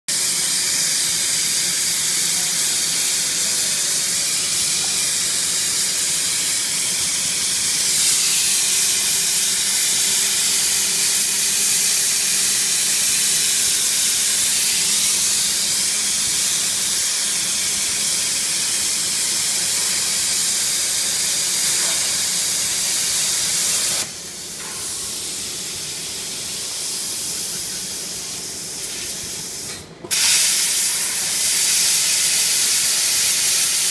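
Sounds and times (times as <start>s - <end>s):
plasma cutting torch hissing: 0.1s - 33.9s.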